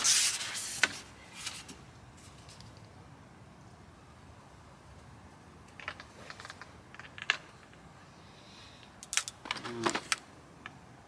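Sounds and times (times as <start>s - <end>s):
fishing tackle clicking: 9.0s - 9.4s.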